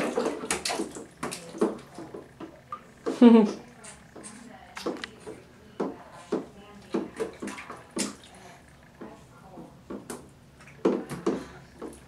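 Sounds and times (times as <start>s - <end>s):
baby splashing water: 0.0s - 8.6s.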